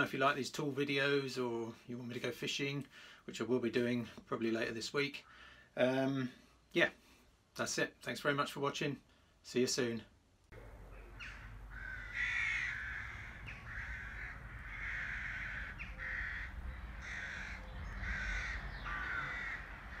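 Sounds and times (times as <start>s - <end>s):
faint low rumble: 10.5s - 20.0s
crow cawing: 10.9s - 20.0s.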